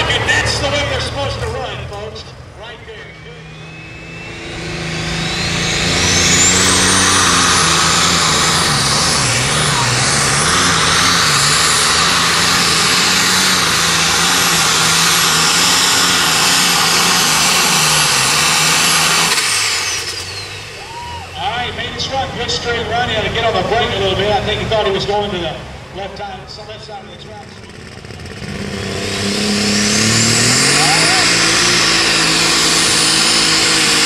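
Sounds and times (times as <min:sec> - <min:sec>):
tractor engine at full throttle: 0:00.0 - 0:34.0
high turbo whistle: 0:02.6 - 0:21.5.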